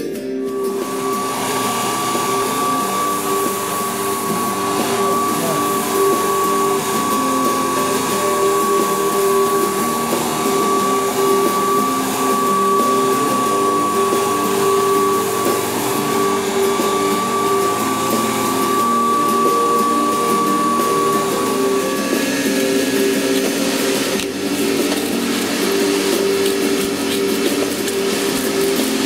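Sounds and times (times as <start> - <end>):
floor machine motor whining: 0.0 - 29.0
pad scrubbing floor hiss: 0.4 - 29.0.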